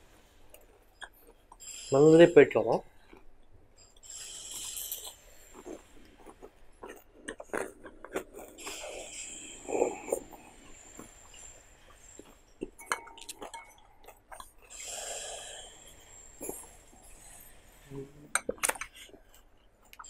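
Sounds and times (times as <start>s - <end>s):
person sipping soup: 4.0s - 20.0s
person breathing: 8.4s - 12.4s, 13.9s - 18.2s.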